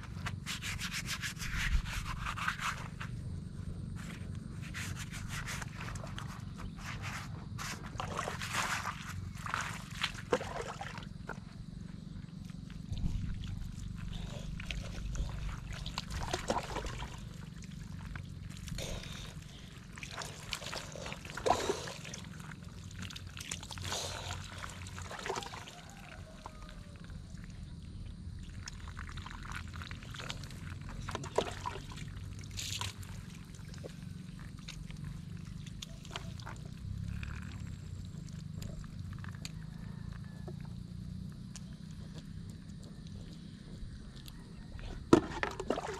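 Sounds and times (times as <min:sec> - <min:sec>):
dipper scooping water from basin: 0:04.6 - 0:11.5, 0:12.8 - 0:26.8, 0:28.4 - 0:40.6, 0:44.8 - 0:45.9
water splashing over body: 0:07.8 - 0:11.5, 0:12.5 - 0:39.4, 0:45.1 - 0:45.9.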